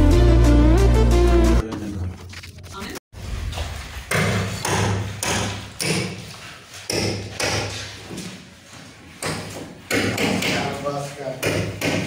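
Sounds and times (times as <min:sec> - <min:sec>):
heavy knocks in tiled room: 0:06.9 - 0:08.3, 0:09.2 - 0:10.8, 0:11.4 - 0:12.0.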